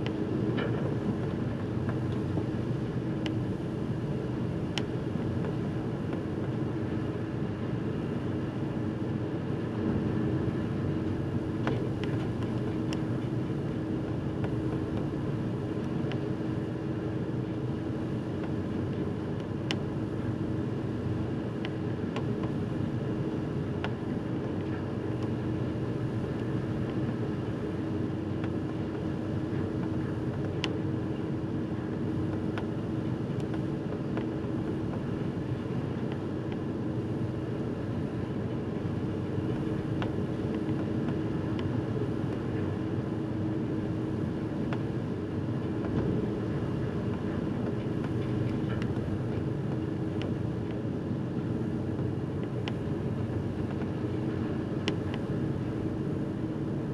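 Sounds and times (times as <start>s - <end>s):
hull through choppy water: 0.0s - 56.9s
ship engine hum: 0.0s - 56.9s.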